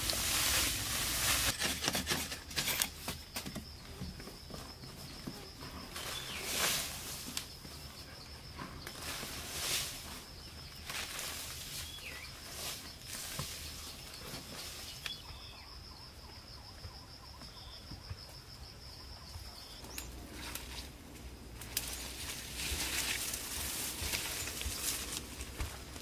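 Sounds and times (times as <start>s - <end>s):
jungle ambience: 0.0s - 26.0s
short knocks and scrapes: 0.1s - 3.7s
insect trilling: 3.2s - 21.0s
faint bird chirps: 11.5s - 20.5s.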